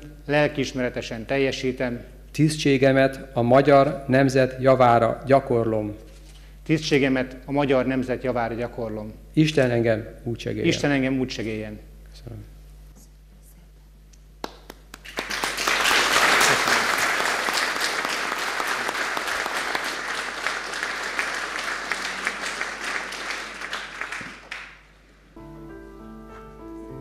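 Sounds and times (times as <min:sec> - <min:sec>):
audience applauding: 0:14.4 - 0:24.9
soft instrumental music: 0:25.3 - 0:27.0.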